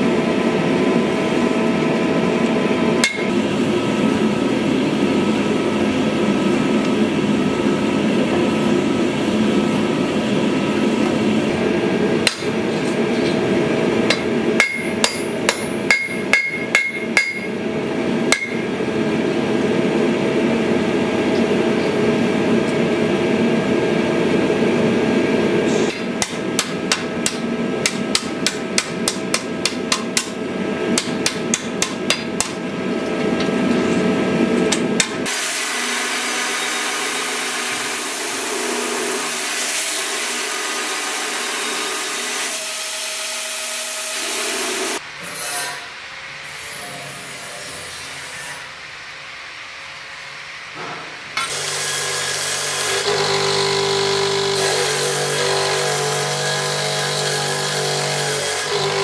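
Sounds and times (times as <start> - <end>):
gas forge roaring: 0.0 - 39.3
hammer striking steel on anvil: 3.0 - 3.4, 12.2 - 12.6, 14.1 - 17.6, 18.3 - 18.7, 25.9 - 30.4, 31.0 - 32.6.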